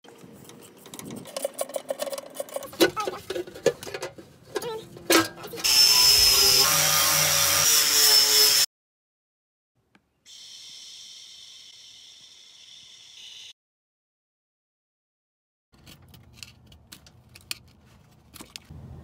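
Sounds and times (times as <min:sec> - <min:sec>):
loud hiss with high whine: 0:10.3 - 0:13.6.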